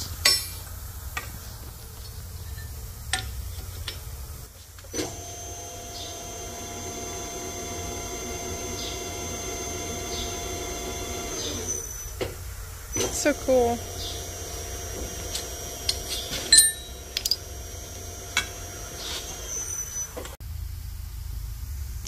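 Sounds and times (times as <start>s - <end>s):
bender motor humming and whining: 4.3s - 20.4s.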